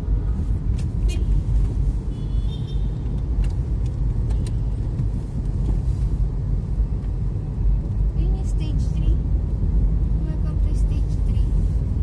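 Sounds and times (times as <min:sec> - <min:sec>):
car interior rumble: 0:00.0 - 0:12.0.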